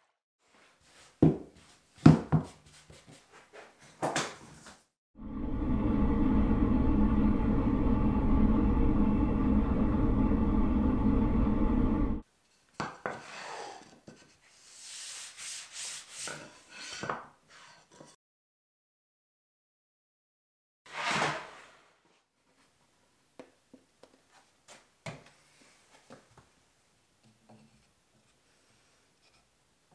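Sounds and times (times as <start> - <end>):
shop vacuum running: 5.2 - 12.2.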